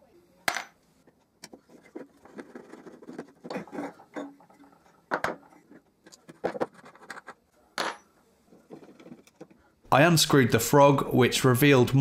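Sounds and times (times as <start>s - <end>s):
scraping and rattling: 1.5s - 7.4s, 8.5s - 9.6s.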